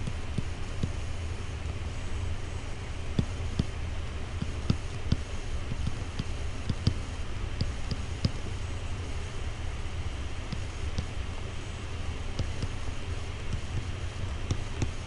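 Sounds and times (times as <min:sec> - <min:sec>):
steady low hum: 0:00.0 - 0:15.0
stylus tapping on a screen: 0:04.4 - 0:07.0, 0:07.6 - 0:08.4, 0:12.3 - 0:12.8, 0:13.5 - 0:15.0.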